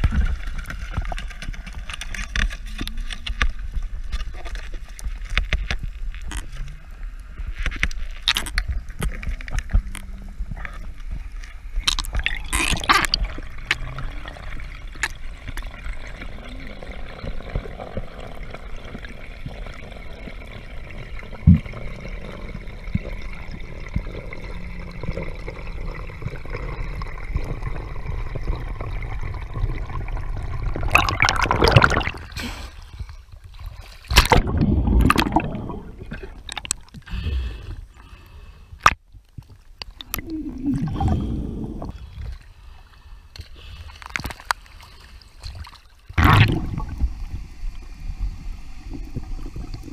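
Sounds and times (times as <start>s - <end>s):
low underwater rumble: 0.0s - 33.2s, 34.2s - 37.7s, 40.0s - 42.5s
underwater gurgles: 0.0s - 49.9s
underwater clicks: 34.1s - 37.2s.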